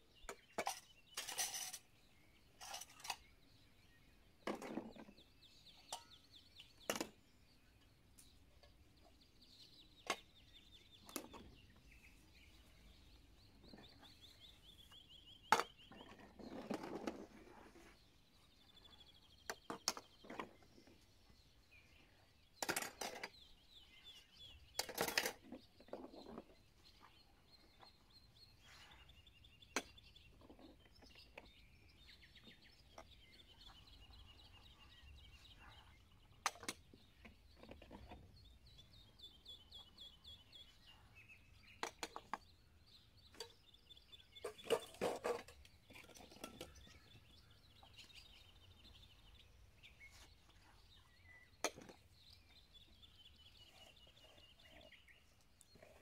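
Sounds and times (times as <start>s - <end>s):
metal pans and dishes clattering: 0.6s - 1.9s.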